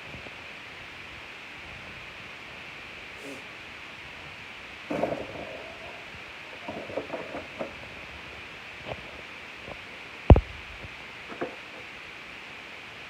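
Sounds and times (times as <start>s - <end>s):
dull thump: 4.9s - 5.6s.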